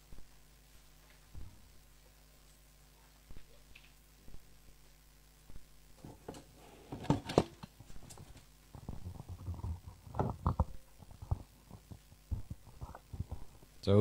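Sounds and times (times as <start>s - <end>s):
low thuds: 1.3s - 1.8s
rustling handling noises: 6.0s - 13.6s.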